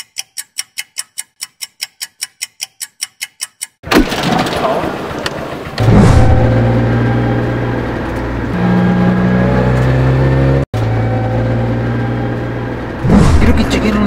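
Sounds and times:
vehicle engine running: 4.0 - 14.0.

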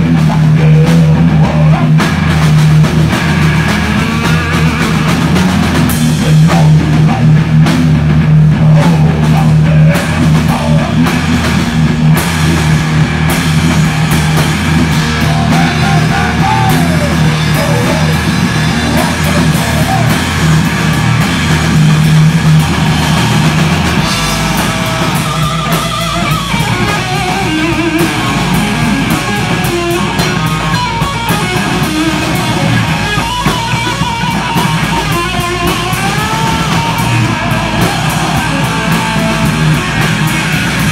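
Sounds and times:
hard rock band playing: 0.0 - 40.9
bending guitar notes: 10.2 - 40.9.

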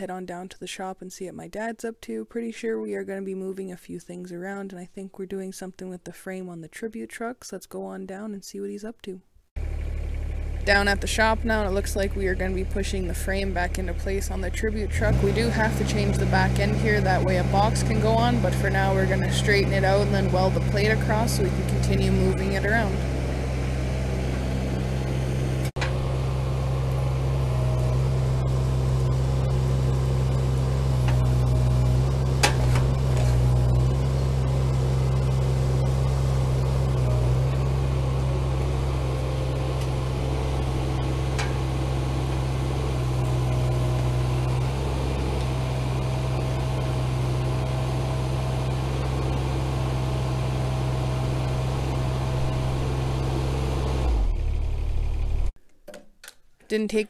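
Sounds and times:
diesel engine running: 9.6 - 55.6
hydraulics pushing: 14.9 - 54.6.

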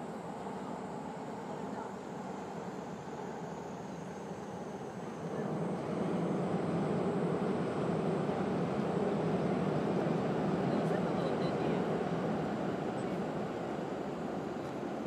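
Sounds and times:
train rumbling overhead: 4.9 - 15.0.

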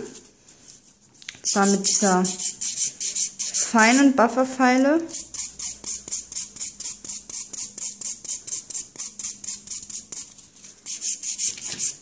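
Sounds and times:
nail file rasping: 1.5 - 4.0, 5.1 - 12.0.

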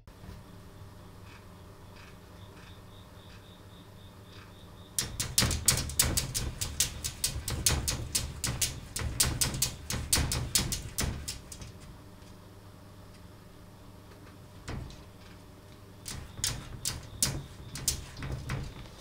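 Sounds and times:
cat claws scratching glass: 5.0 - 11.9, 16.0 - 18.9
door rattling: 5.0 - 12.0, 14.6 - 19.0.

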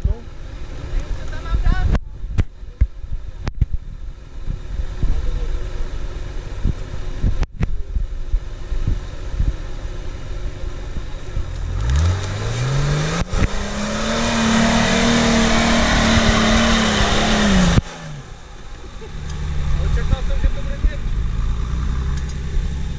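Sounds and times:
off-road vehicle engine revving: 8.4 - 22.9
tyres churning dirt: 11.6 - 22.9.

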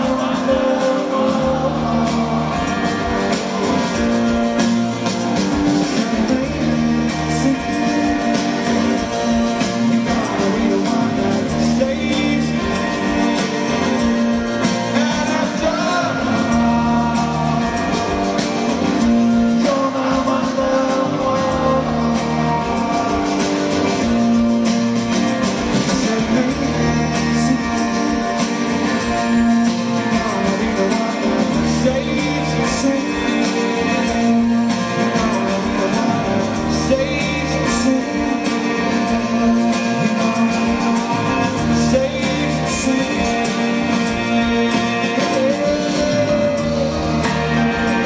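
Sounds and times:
drums: 0.0 - 48.0
electric guitar: 0.0 - 48.0
person singing: 0.0 - 48.0
strummed acoustic guitar: 0.0 - 48.0.

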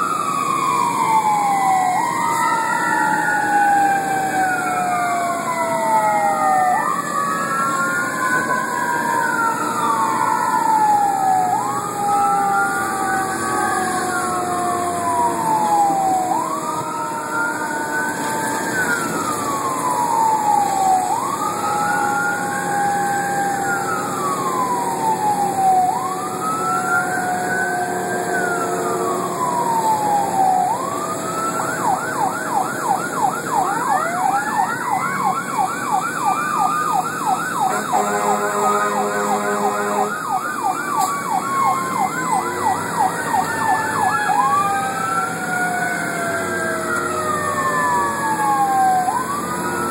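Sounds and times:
fire engine siren wailing and yelping: 0.0 - 49.9
horn blast: 37.7 - 40.1.

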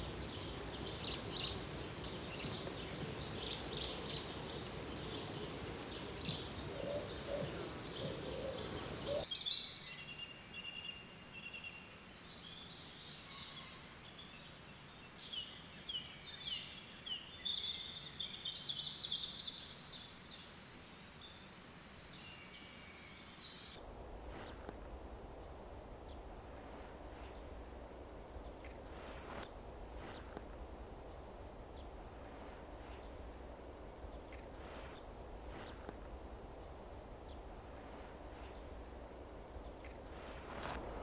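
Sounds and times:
faint background hiss: 0.0 - 41.0
small birds chirping: 0.0 - 41.0
heavy rushing noise: 27.6 - 41.0.

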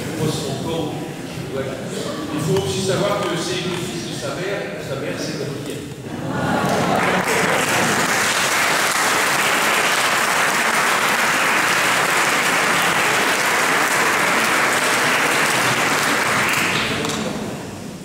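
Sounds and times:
audience applauding: 6.4 - 17.5.

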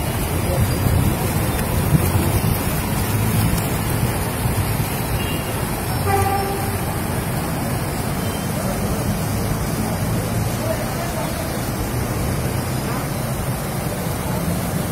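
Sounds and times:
floodwater rushing: 0.0 - 14.9
vehicle horn toot: 5.2 - 7.0.

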